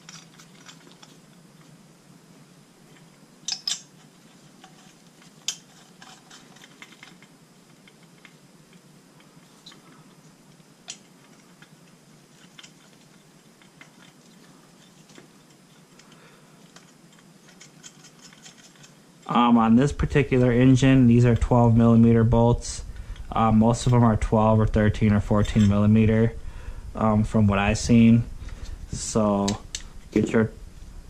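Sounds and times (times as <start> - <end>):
metal bolts and washers clinking: 0.0 - 1.2, 3.4 - 8.3, 16.7 - 19.0, 25.3 - 25.9
low steady hum: 0.0 - 31.0.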